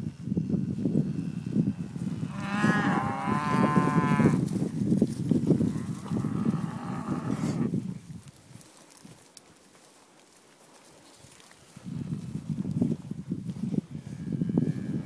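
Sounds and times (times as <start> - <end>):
rustling in grass: 0.4 - 15.0
cows mooing: 2.2 - 4.5, 5.7 - 7.7.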